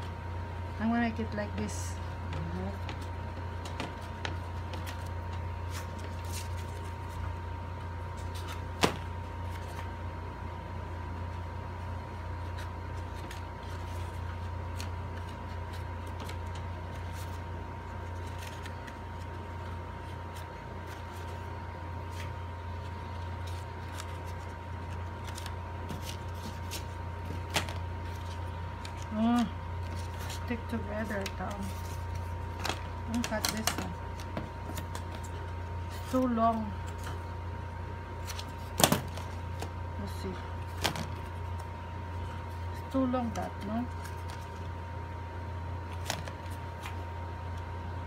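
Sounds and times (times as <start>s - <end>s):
paper petals clicking and rustling: 12.4s - 37.3s, 45.9s - 47.0s.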